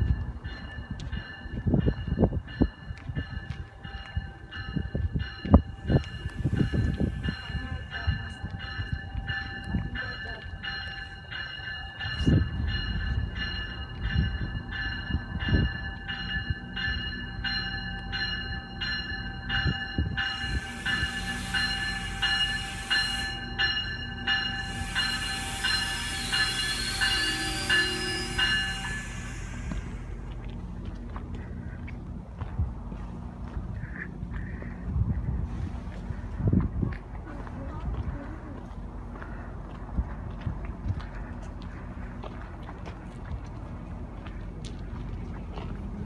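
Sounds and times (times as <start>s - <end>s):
train bell ringing: 0.0s - 30.6s
brakes hissing: 20.4s - 23.7s, 24.5s - 30.6s
wheel squeal: 24.6s - 30.2s.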